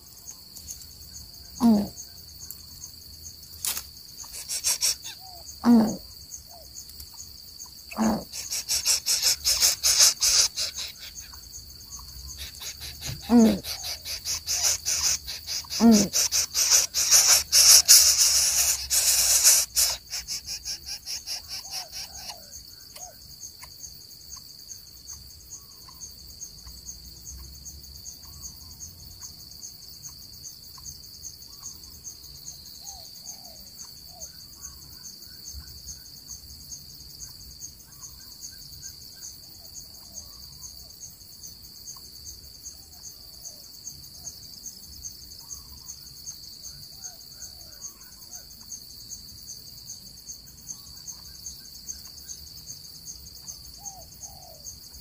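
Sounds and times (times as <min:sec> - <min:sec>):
insect chorus pulsing trill: 0:00.0 - 0:55.0
faint bird chirps: 0:04.2 - 0:07.3, 0:07.9 - 0:23.7, 0:45.4 - 0:46.0
short calls falling in pitch: 0:12.4 - 0:20.3.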